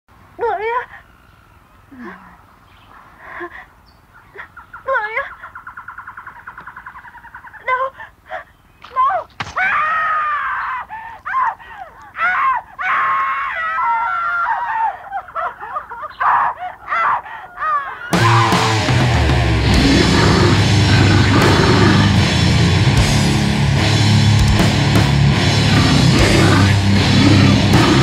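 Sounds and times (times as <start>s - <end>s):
high-pitched voice screaming: 16.2s - 18.9s, 19.7s - 22.3s, 25.7s - 28.0s.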